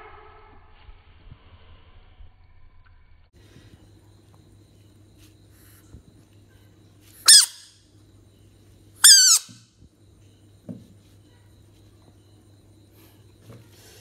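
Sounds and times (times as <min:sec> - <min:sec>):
frog distress calls: 0:07.2 - 0:07.7, 0:09.0 - 0:09.6.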